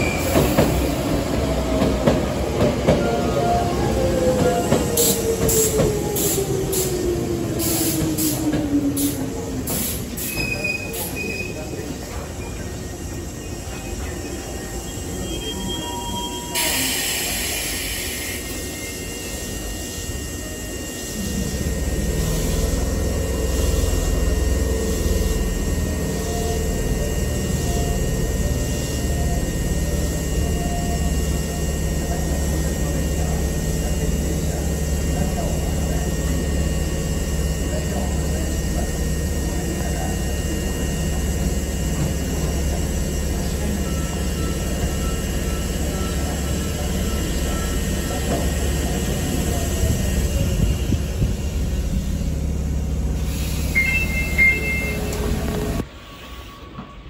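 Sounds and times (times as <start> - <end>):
electric train equipment rumble: 11.0 - 56.0.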